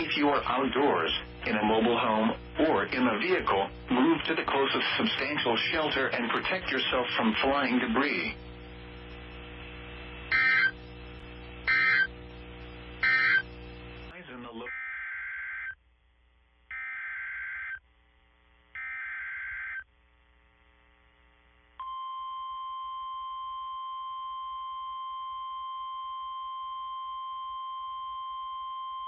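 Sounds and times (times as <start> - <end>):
steady warning alarm tone: 10.3 - 11.0, 11.6 - 12.2, 13.0 - 13.6, 14.7 - 15.8, 16.7 - 17.8, 18.8 - 19.9
data tone bursts: 10.3 - 14.1.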